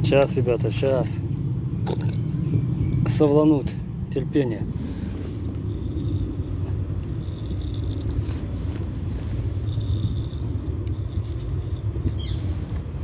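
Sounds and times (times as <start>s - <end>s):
low rumble: 0.0s - 13.0s
light rattling and scraping: 4.7s - 13.0s.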